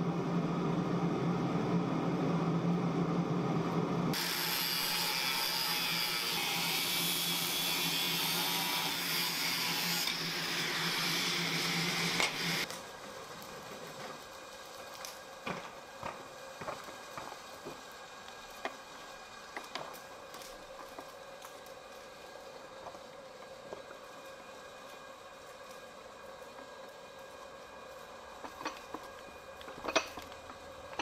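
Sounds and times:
low machine hum: 0.0s - 4.2s
angle grinder cutting steel: 4.2s - 12.7s.

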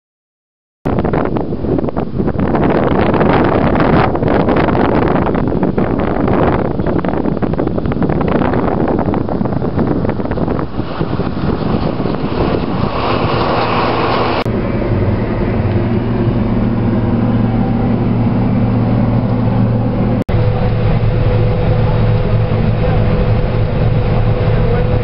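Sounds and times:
high steady hum: 1.0s - 25.0s
engine drone in vehicle cab: 1.4s - 25.0s.

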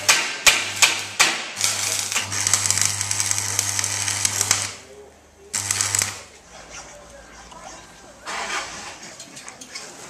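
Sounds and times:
arc welding hiss and crackle: 0.0s - 4.9s, 5.5s - 6.3s
welder low hum: 1.6s - 4.9s, 5.5s - 6.3s.

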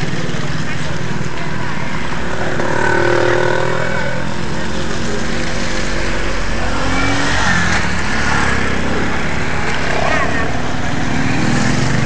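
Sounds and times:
background voices: 0.0s - 12.0s
car engines passing: 0.0s - 12.0s
motorcycle engines revving: 0.0s - 12.0s.

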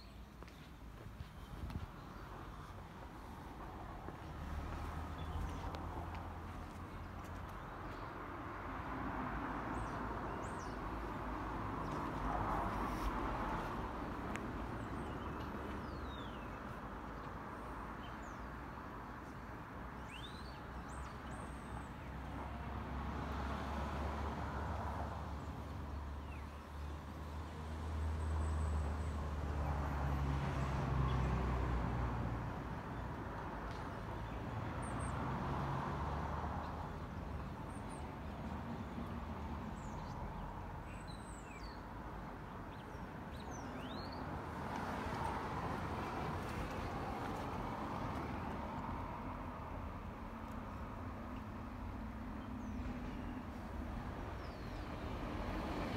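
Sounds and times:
small birds chirping: 42.7s - 44.2s.

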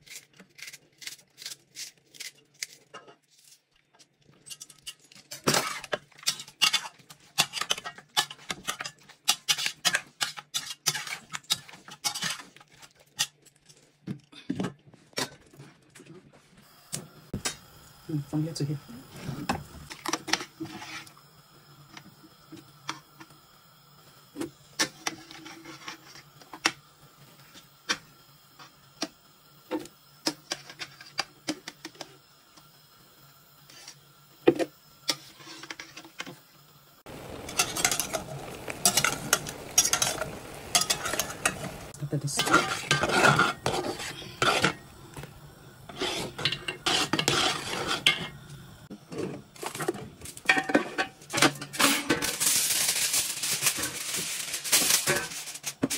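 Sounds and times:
spoon scraping and stirring in pot: 2.0s - 14.0s, 19.4s - 21.2s, 24.8s - 26.8s, 33.7s - 36.4s, 37.1s - 52.5s
metal spoon clinking on pot: 38.8s - 41.6s.

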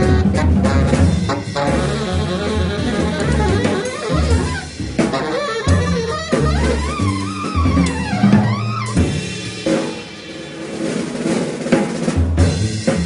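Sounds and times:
guitar: 0.0s - 9.8s
drum kit beat: 0.0s - 13.0s.

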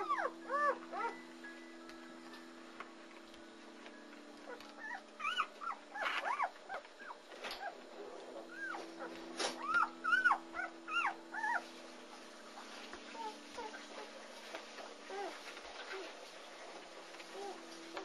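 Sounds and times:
puppies squeaking and whimpering: 0.0s - 1.2s, 4.4s - 7.8s, 8.5s - 11.7s, 13.1s - 14.2s
steady low hum: 0.0s - 18.0s.

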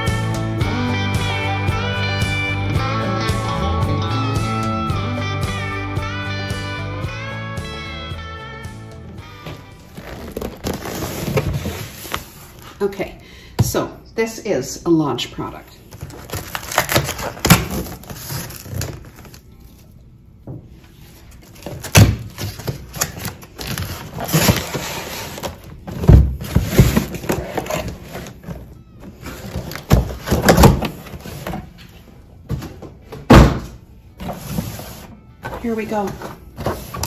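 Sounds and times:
cardboard rustling and scraping: 9.5s - 12.8s, 16.0s - 19.8s, 20.8s - 32.8s, 34.2s - 37.0s
cardboard carton tearing: 9.9s - 12.3s, 16.1s - 19.4s, 21.6s - 25.7s.

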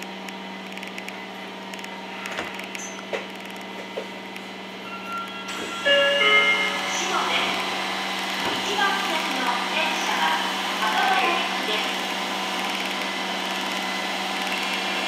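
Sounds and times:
subway train electric hum: 0.0s - 15.0s
electronic chime tones: 4.8s - 7.6s.

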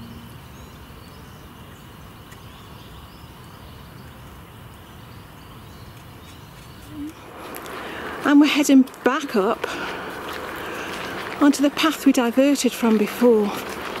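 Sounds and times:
faint bird chirps: 0.0s - 7.2s
low steady hiss: 0.0s - 14.0s.

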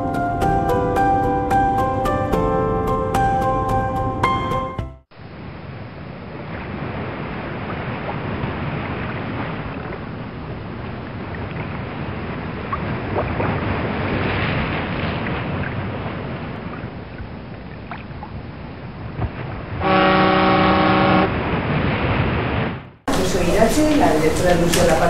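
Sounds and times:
sea waves: 5.1s - 25.0s
wind: 5.1s - 25.0s.

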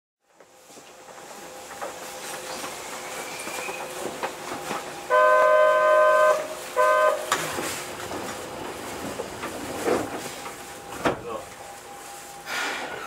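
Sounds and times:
train running noise: 0.2s - 13.0s
train horn: 5.1s - 7.6s.

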